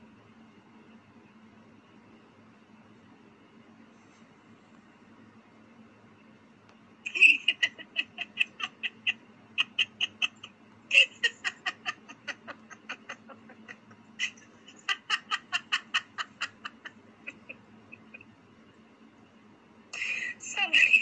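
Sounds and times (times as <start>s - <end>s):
person laughing: 7.1s - 18.3s.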